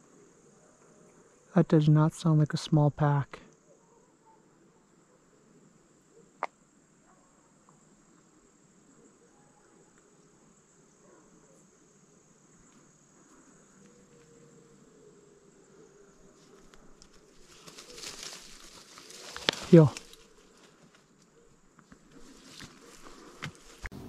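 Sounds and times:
high insect trill: 0.0 - 23.9
rustling through brush: 15.9 - 23.9.

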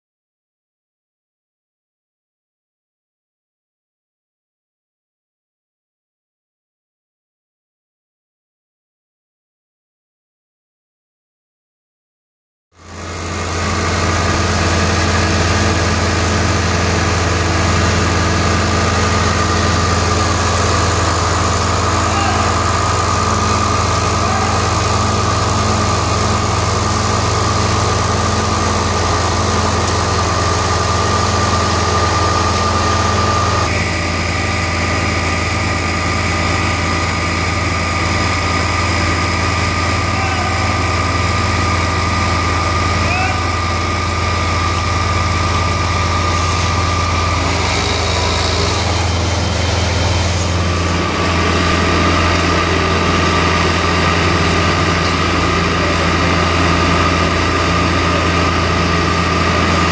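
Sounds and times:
screed engine humming: 12.8 - 59.9
spreader engine running: 12.8 - 59.9.

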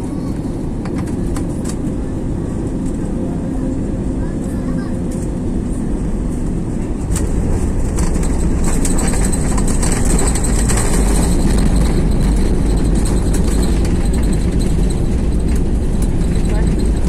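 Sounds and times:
wheels and jet engines rumbling: 0.0 - 17.0
light cabin rattles: 6.2 - 17.0.

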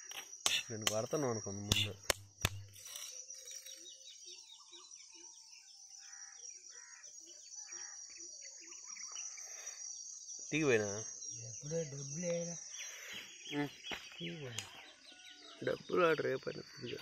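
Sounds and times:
birds calling: 0.0 - 17.0
high-pitched insect drone: 0.0 - 17.0
sharp click: 1.7 - 3.1.

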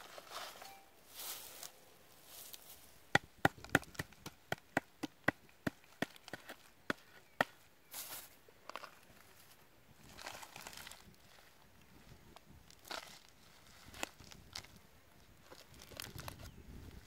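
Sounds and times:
sharp knocks on hard clay: 3.1 - 7.6.

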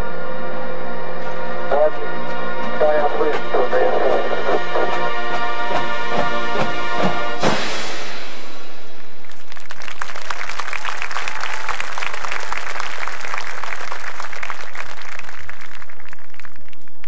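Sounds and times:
crowd applauding: 9.2 - 17.0.

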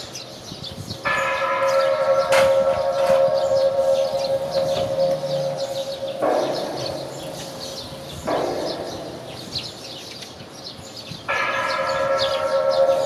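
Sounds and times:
small birds chirping: 0.0 - 13.0
siren-like tone: 2.2 - 7.7.

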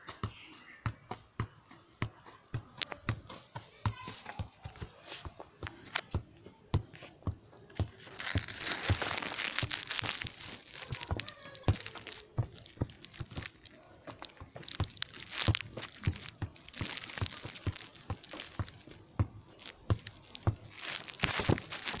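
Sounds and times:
football taps and thuds: 0.1 - 8.2, 18.7 - 20.0
footsteps on grass: 1.2 - 22.0
rustling: 3.2 - 6.1, 6.9 - 22.0.

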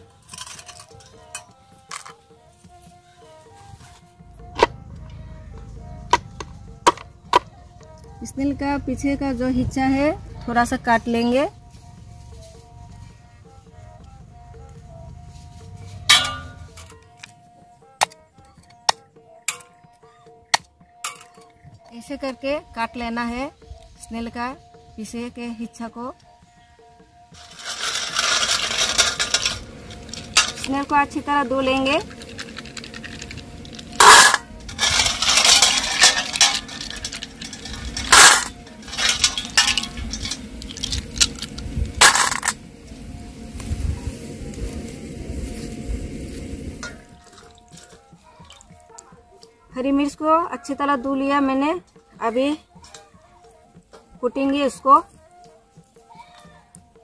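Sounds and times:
soft background music: 0.0 - 57.0
snail shells cracking: 27.4 - 30.7, 32.0 - 42.6.

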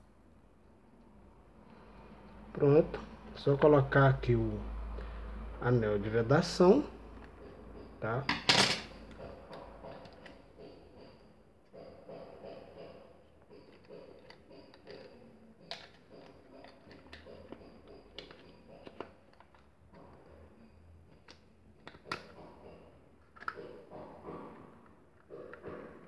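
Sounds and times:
plastic parts rubbing: 12.2 - 20.5.

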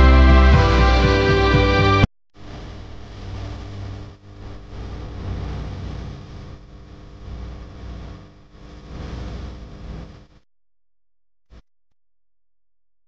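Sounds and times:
rushing noise: 4.5 - 8.2.

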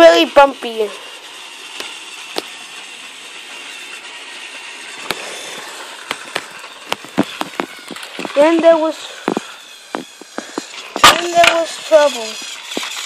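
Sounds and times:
toy train motor whirring: 0.0 - 13.0
sharp clicks and knocks: 6.0 - 11.6.

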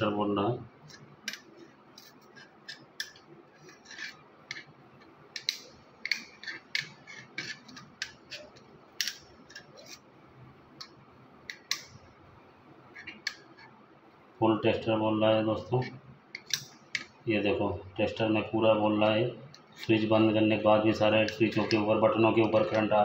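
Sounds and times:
metal tools clicking and scraping: 0.8 - 10.0, 10.8 - 12.0, 15.8 - 17.2, 21.2 - 22.9.

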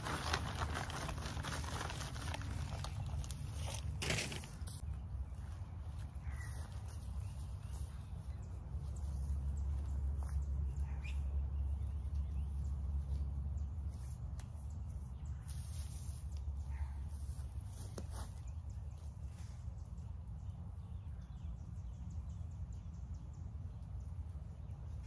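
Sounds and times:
steady low rumble: 4.4 - 17.8
faint bird chirps: 4.8 - 13.8.

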